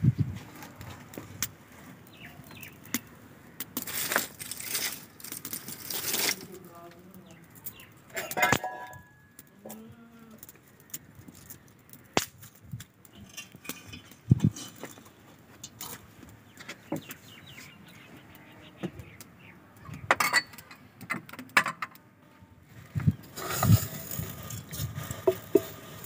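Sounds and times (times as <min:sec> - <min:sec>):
twigs clicking and snapping: 0:00.6 - 0:08.4, 0:09.4 - 0:13.1.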